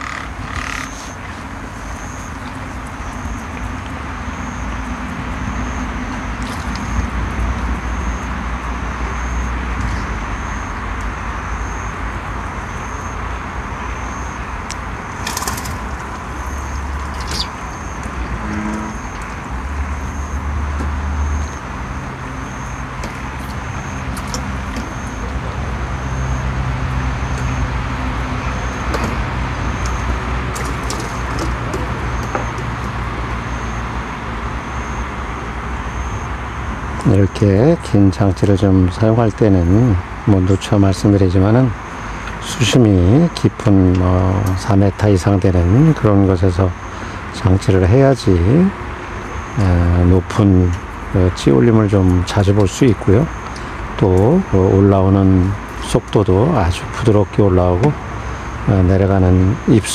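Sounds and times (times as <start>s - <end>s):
faint high chirp: 5.4s - 10.8s, 15.1s - 20.4s.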